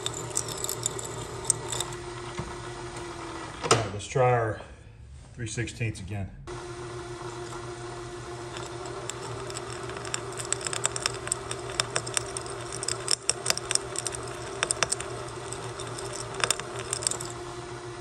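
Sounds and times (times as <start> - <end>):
drill bit ticking and crackling: 0.0 - 2.0, 8.5 - 17.4
drill motor hum: 0.0 - 2.2, 7.3 - 17.6.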